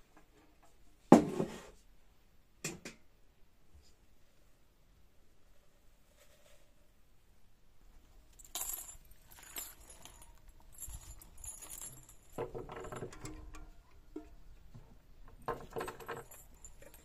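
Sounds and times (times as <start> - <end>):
metal containers clinking: 15.4 - 17.0.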